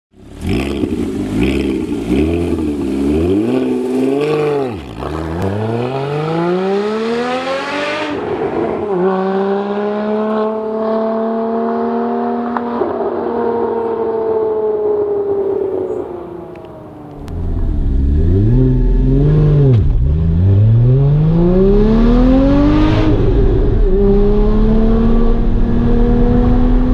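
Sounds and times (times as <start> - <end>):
car engine accelerating hard: 0.2 - 8.3, 8.9 - 16.0, 16.6 - 26.9.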